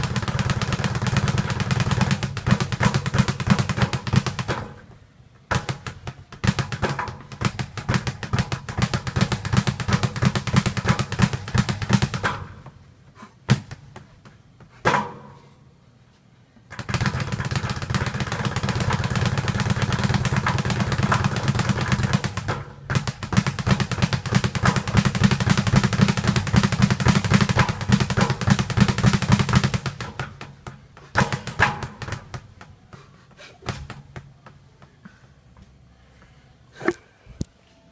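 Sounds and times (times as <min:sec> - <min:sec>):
speed bag rattling strikes: 0:00.0 - 0:04.8, 0:05.5 - 0:12.5, 0:16.7 - 0:32.7.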